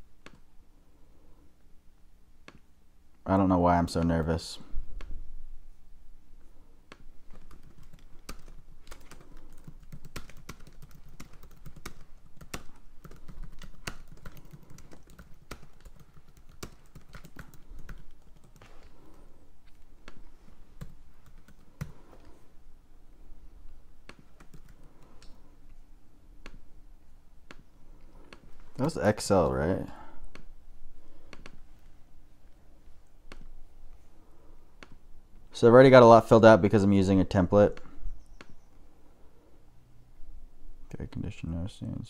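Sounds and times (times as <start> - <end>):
typing on computer keyboard: 6.9 - 18.9, 24.1 - 25.4.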